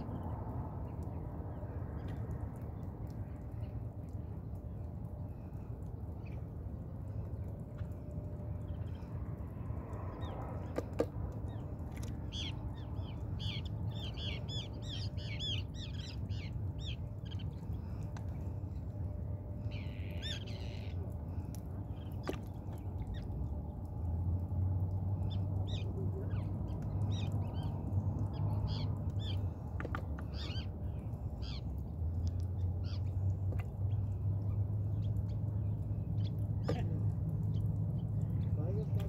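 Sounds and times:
steady low rumble: 0.0s - 39.0s
birds calling: 10.1s - 23.6s, 24.8s - 39.0s.

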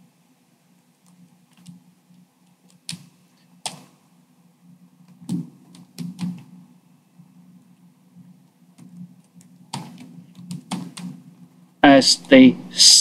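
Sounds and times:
steady low hum: 0.0s - 13.0s
keyboard typing clicks: 8.8s - 11.2s.

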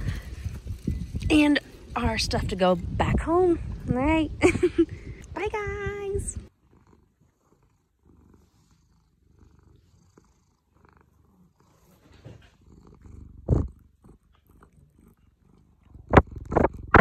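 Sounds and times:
cat purring: 6.3s - 17.0s.

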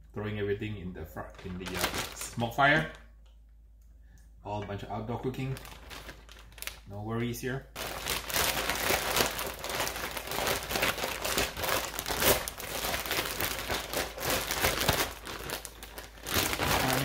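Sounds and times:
plastic bag crinkling: 1.2s - 3.2s, 5.2s - 7.0s, 7.7s - 17.0s.

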